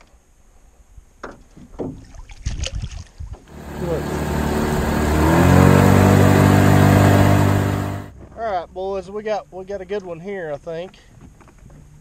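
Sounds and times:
outboard motor running: 0:03.5 - 0:08.1.

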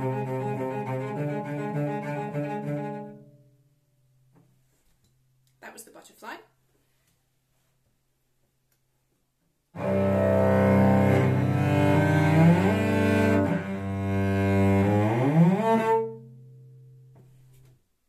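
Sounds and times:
bowed cello with sliding notes: 0:00.0 - 0:03.5, 0:09.8 - 0:16.4.

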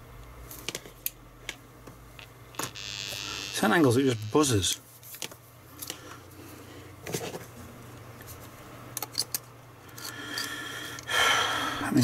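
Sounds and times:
faint low hum: 0:02.1 - 0:04.8.

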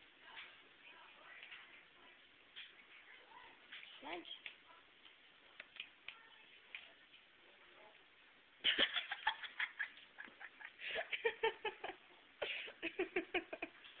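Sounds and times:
person giggling: 0:08.7 - 0:13.8.

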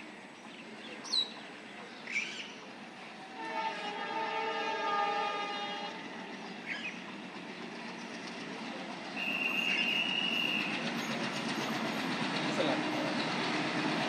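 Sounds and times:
distant train rumble: 0:00.0 - 0:14.0
train horn chord: 0:03.2 - 0:06.0.

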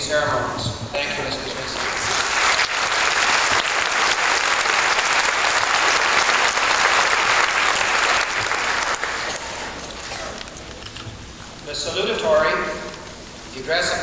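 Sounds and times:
audience applauding: 0:01.8 - 0:10.4.

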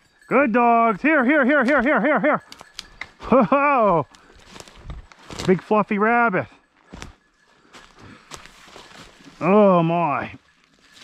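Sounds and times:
footsteps in dry leaves: 0:04.1 - 0:05.8, 0:06.8 - 0:11.0.

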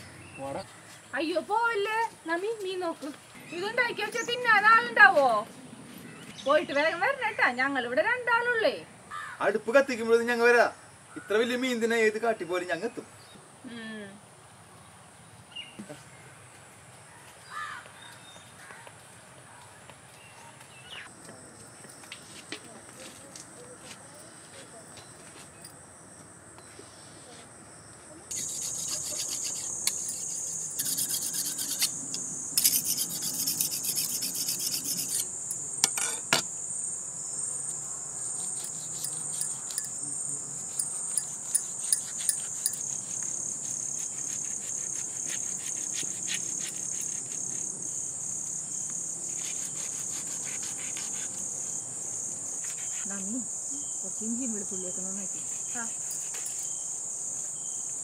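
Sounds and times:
insects chirping: 0:00.0 - 0:19.2, 0:20.1 - 0:58.0
knife scraping fish on board: 0:28.3 - 0:32.0.

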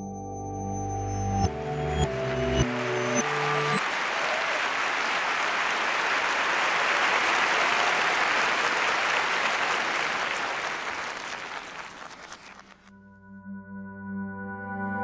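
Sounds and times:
reversed audience applause: 0:01.5 - 0:12.9.

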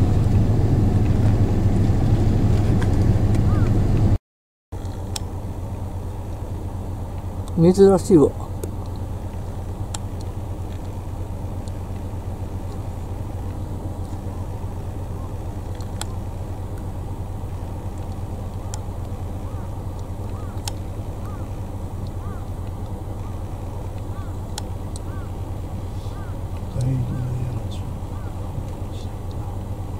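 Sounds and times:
low motor hum: 0:00.0 - 0:04.2, 0:04.8 - 0:29.9
sharp clicks: 0:19.9 - 0:21.4, 0:23.9 - 0:25.2.

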